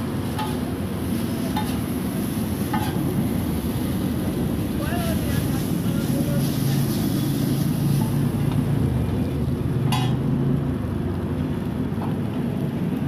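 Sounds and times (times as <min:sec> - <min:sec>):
steady low rumble: 0:00.0 - 0:13.0
metal spatula scraping griddle: 0:02.7 - 0:03.0.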